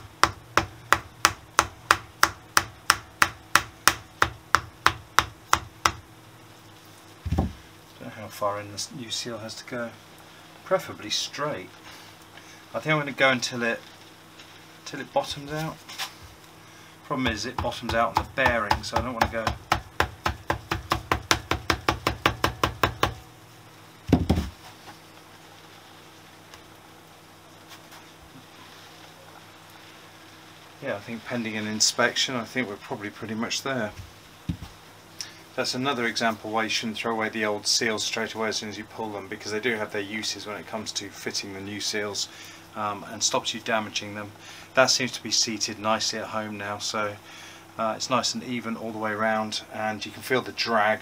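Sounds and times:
dull thump: 0:07.2 - 0:07.6, 0:24.1 - 0:24.6.

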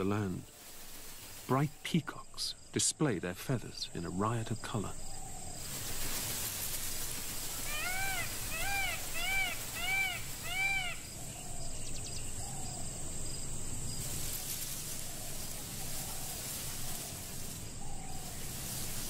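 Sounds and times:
outdoor hiss: 0:00.0 - 0:19.0
peafowl calling: 0:05.0 - 0:12.9, 0:14.0 - 0:19.0.

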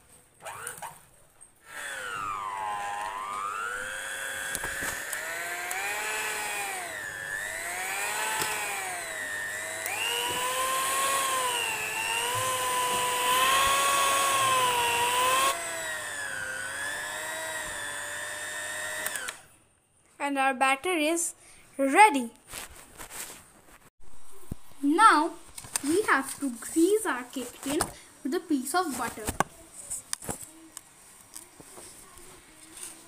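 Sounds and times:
electric hand mixer whining: 0:01.6 - 0:19.5.

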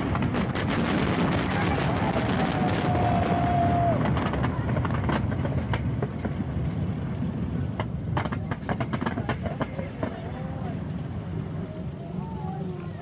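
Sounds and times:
firework whistle: 0:00.0 - 0:04.4
fireworks popping and crackling: 0:00.0 - 0:13.0
low rumble: 0:00.0 - 0:13.0.

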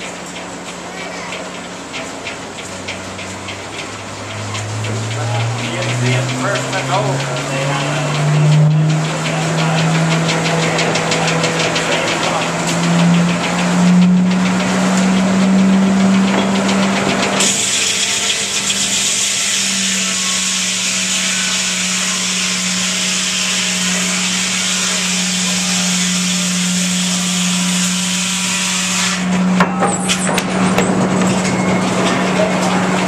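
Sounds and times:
sawmill drive humming: 0:00.0 - 0:33.0
saw blade cutting log: 0:03.2 - 0:29.4.

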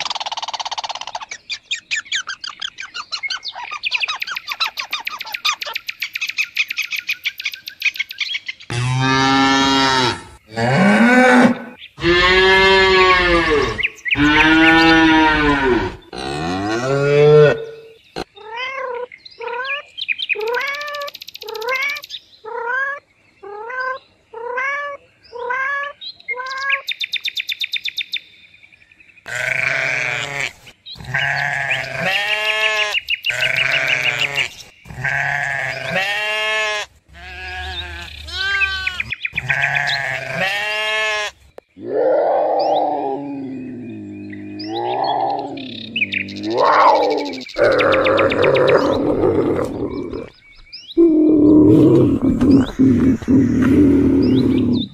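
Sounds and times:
animal cries rising and falling: 0:08.7 - 0:19.0, 0:35.0 - 0:50.3, 0:51.0 - 0:54.9.

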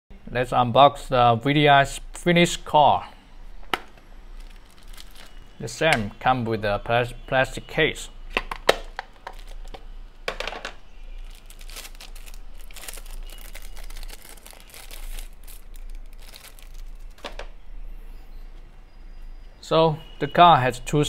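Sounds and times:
plastic bag crinkling: 0:04.3 - 0:05.5, 0:08.8 - 0:09.9, 0:11.1 - 0:17.4
plastic case clicks: 0:08.4 - 0:10.8.

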